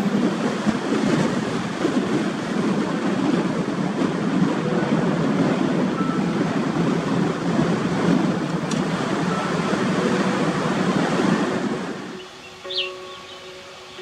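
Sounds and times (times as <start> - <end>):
tyre and wind noise: 0.0 - 12.9.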